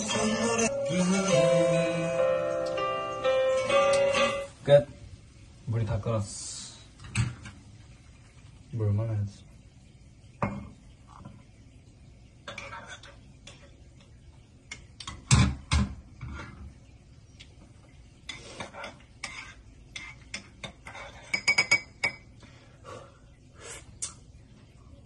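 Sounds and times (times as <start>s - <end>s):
metal spoon scraping saucepan: 18.3s - 21.9s.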